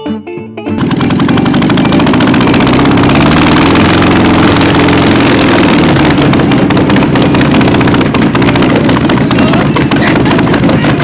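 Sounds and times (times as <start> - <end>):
air-cooled car engine running: 0.8 - 11.0.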